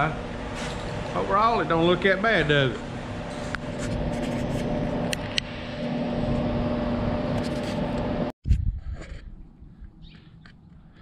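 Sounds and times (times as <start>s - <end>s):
machine humming and rushing: 0.0s - 8.3s.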